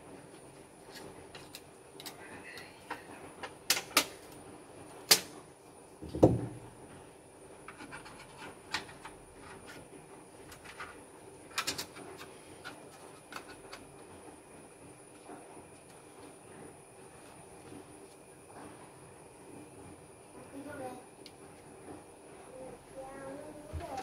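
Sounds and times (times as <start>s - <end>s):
heavy knock: 6.0s - 6.7s.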